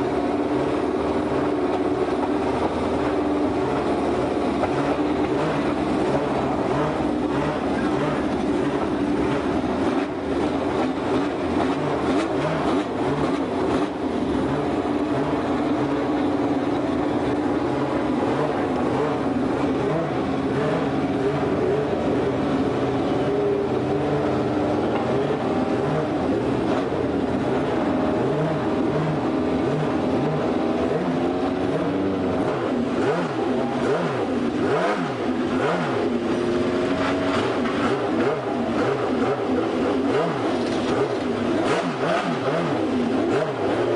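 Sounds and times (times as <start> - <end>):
racing car engines revving: 0.0 - 43.9.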